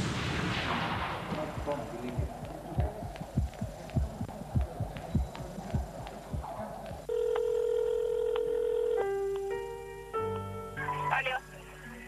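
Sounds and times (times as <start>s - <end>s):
low thumps: 0.0s - 7.1s
mobile phone ringing: 7.1s - 9.2s.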